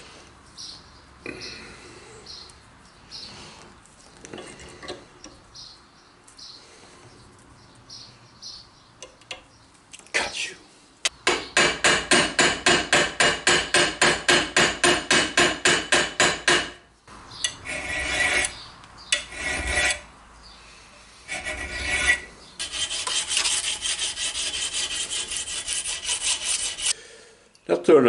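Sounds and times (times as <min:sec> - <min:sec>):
hammer tapping metal: 0:11.2 - 0:16.8
file rasping on metal: 0:17.4 - 0:20.1, 0:21.3 - 0:27.0.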